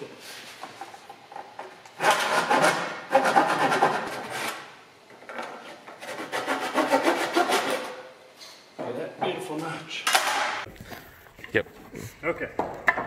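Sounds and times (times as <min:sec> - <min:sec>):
hand saw rasping through wood: 0:02.0 - 0:04.2, 0:06.0 - 0:08.0.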